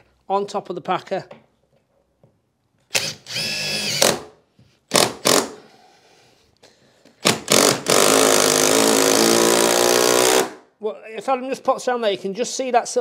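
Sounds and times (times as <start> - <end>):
cordless driver motor: 2.9 - 4.1.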